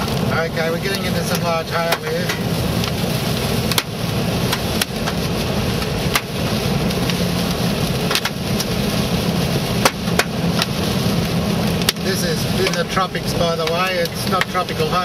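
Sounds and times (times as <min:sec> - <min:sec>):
car engine and road rumble: 0:00.0 - 0:15.0
heavy rain and hail on vehicle: 0:00.0 - 0:15.0
hailstones banging on car body: 0:03.6 - 0:07.0, 0:08.0 - 0:12.9.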